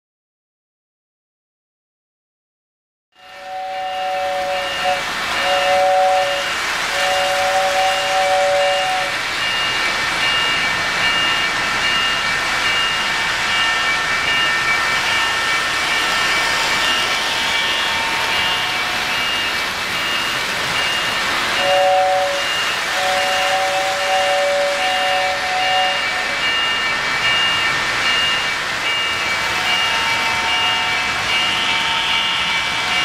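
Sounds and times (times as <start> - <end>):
two-note train whistle: 3.1 - 9.2, 21.6 - 26.5
model trains rolling on track: 3.2 - 33.0.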